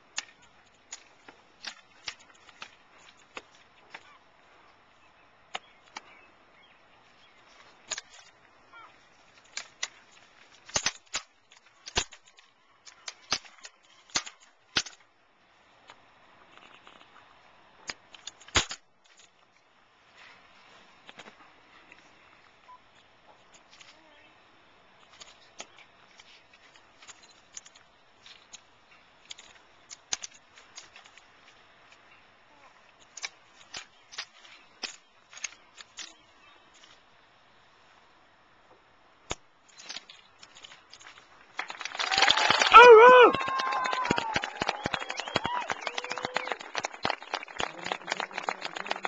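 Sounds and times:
wooden rifles clicking and slapping: 0.0 - 4.2, 5.5 - 6.2, 7.4 - 15.1, 17.9 - 19.6, 25.0 - 32.1, 32.9 - 37.0, 39.3 - 42.4.

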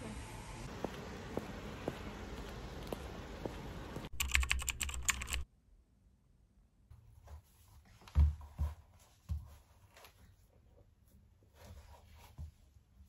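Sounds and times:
fast typing on laptop keyboard: 4.1 - 5.5.

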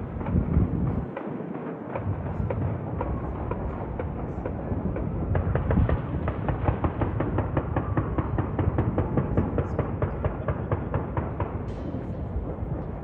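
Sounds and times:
low rumble: 0.0 - 1.2, 11.7 - 13.0
fireworks popping and banging: 0.0 - 13.0.

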